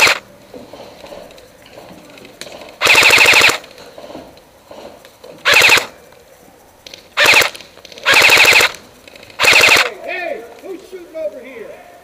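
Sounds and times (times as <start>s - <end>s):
airsoft rifle full-auto bursts: 0.0s - 0.2s, 2.8s - 3.7s, 5.4s - 6.0s, 7.2s - 8.8s, 9.4s - 10.0s.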